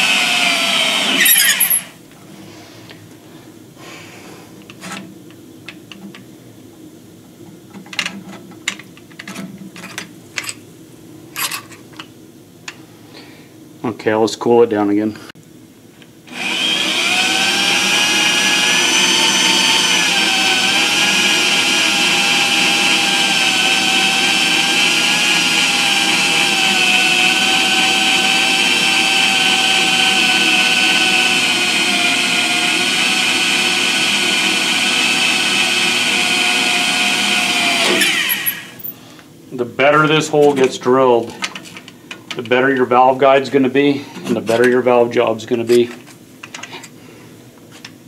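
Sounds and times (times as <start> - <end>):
electric drill boring metal: 0.0 - 1.9, 16.3 - 38.9.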